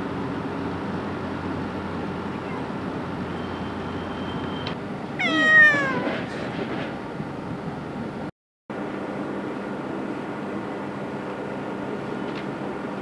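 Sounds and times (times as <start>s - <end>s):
cat meowing: 5.2s - 6.2s.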